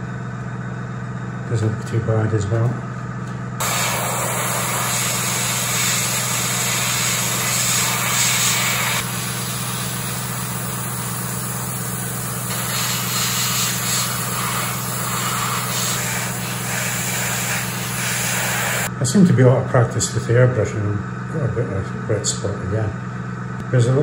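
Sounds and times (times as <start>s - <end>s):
steady low hum: 0.0s - 24.0s
airbrush spraying hiss: 3.6s - 18.9s.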